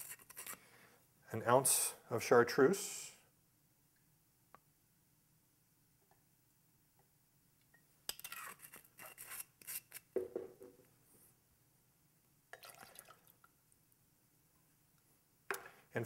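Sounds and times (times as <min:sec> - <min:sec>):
liquid dripping: 0:12.5 - 0:13.6.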